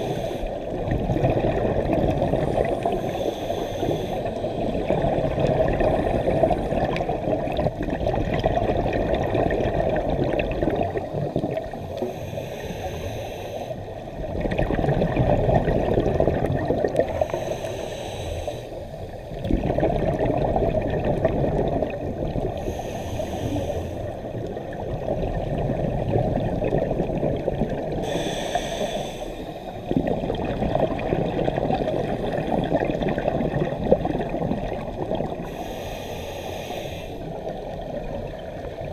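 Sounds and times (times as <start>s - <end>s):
regulator inhale hiss: 0.0s - 0.7s, 2.5s - 4.8s, 11.8s - 14.0s, 17.0s - 19.3s, 22.6s - 24.3s, 27.9s - 29.9s, 35.4s - 37.7s
exhaled air bubbling: 0.0s - 38.9s.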